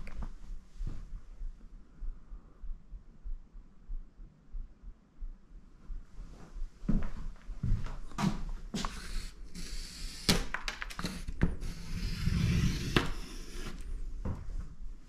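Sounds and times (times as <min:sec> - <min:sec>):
charcoal scratching on paper: 0:11.7 - 0:13.8.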